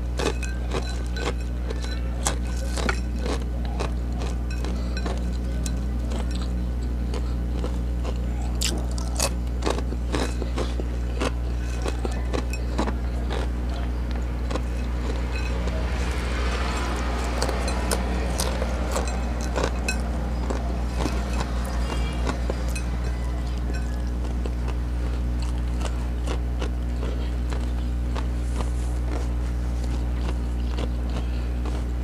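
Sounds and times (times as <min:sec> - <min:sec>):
crunching and chewing snack: 0:00.0 - 0:32.0
steady low hum: 0:00.0 - 0:32.0.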